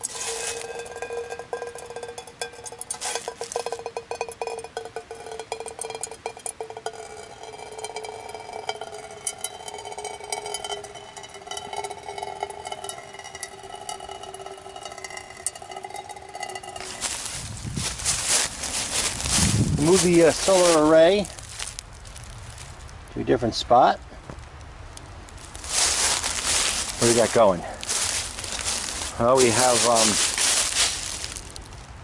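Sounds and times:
water dripping into metal pot: 0.0 - 23.0.

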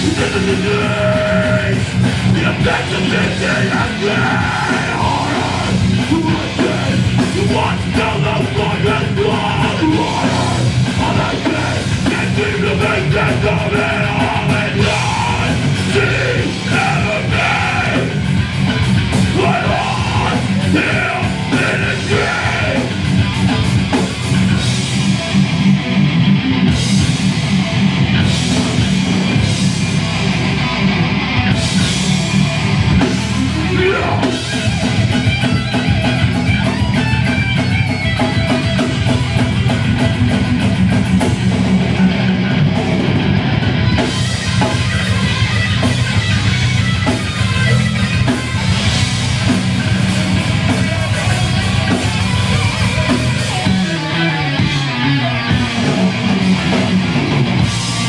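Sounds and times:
vocalist singing and yelling: 0.0 - 23.6, 33.0 - 37.7, 49.4 - 58.0
electric guitar: 0.0 - 58.0
heavy metal band playing: 0.0 - 58.0.

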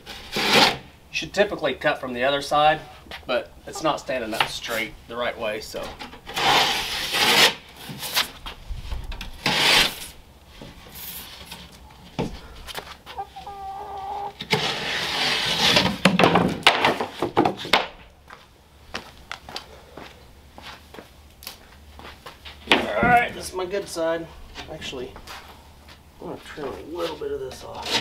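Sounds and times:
chicken clucking: 3.7 - 4.8, 12.6 - 14.4.

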